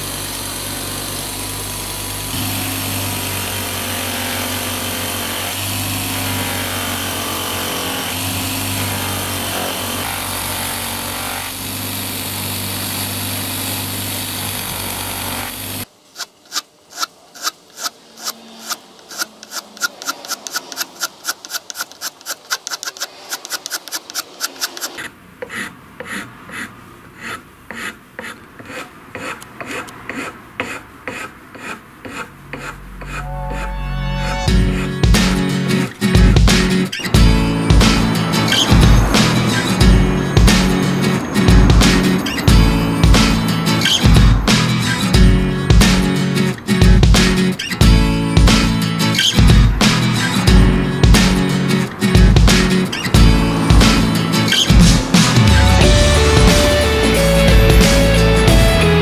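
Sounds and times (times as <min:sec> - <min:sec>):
abrasive wheel grinding: 0:00.0 - 0:59.0
hand file rasping on metal: 0:01.8 - 0:35.5.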